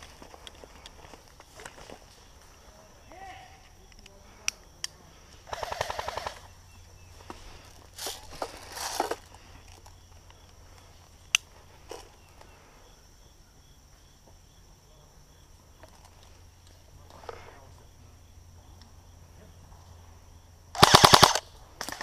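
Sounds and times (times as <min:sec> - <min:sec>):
footsteps through brush: 0:00.0 - 0:02.6, 0:07.1 - 0:12.5
airsoft rifle full-auto burst: 0:05.5 - 0:06.5, 0:20.7 - 0:22.0.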